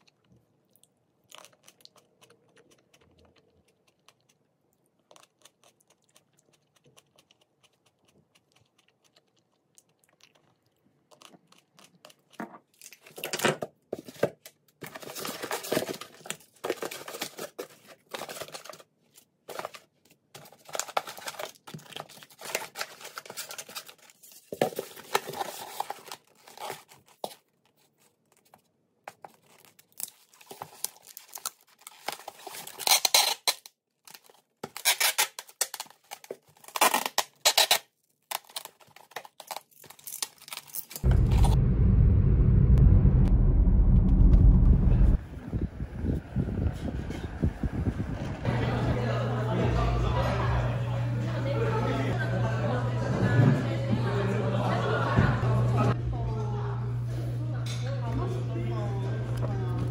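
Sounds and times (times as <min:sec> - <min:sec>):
plastic wrap crinkling: 0:14.0 - 0:41.1
styrofoam box scraping and squeaking: 0:32.1 - 0:33.7, 0:34.6 - 0:35.8, 0:36.6 - 0:37.9.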